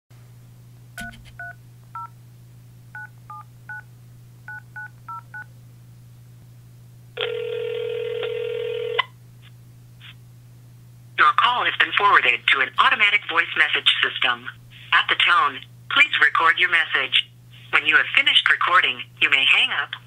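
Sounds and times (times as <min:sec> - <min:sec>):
faint steady hum: 0:00.2 - 0:20.0
phone keypad dialing tones: 0:01.0 - 0:02.1
phone ringing tone: 0:07.2 - 0:09.1.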